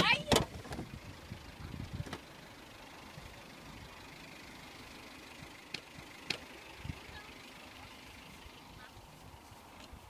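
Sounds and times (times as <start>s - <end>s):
low bumps: 0.0s - 4.0s
car engine idling: 0.0s - 10.0s.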